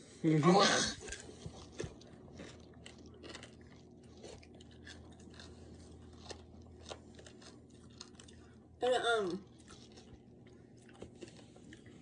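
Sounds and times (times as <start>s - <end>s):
person chewing crunchy food: 0.7s - 12.0s.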